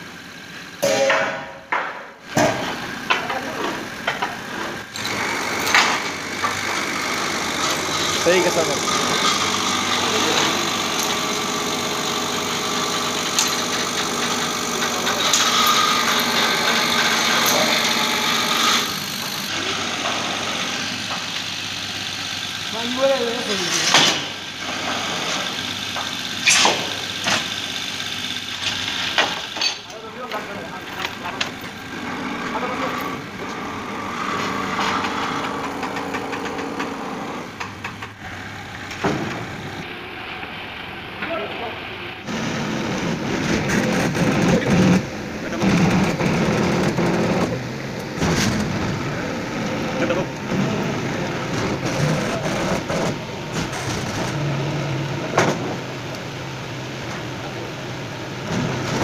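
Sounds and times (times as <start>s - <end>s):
sharp metal knock: 0.8s - 2.0s
machine motor hum: 2.2s - 59.0s
chains and metal rail clanking: 29.4s - 30.4s.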